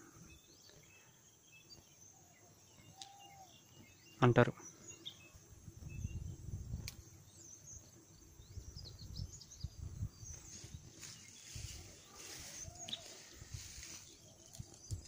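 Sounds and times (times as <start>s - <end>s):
small birds chirping: 0.0s - 15.0s
microphone wind rumble: 5.5s - 7.0s, 8.4s - 12.1s.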